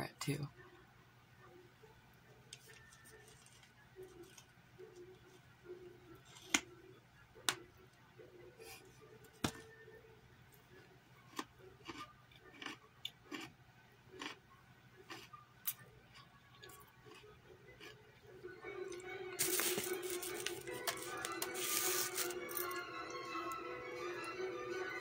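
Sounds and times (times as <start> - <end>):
crunching raw carrot: 11.3 - 13.5.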